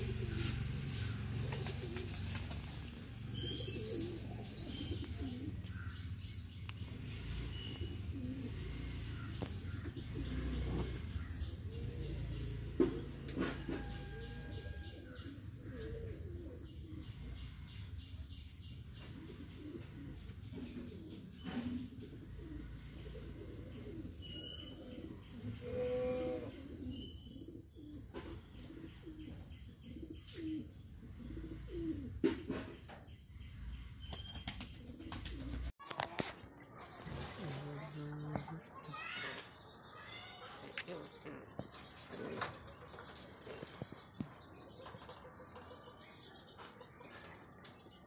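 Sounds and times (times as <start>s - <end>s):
pigeons cooing: 0.0s - 35.7s.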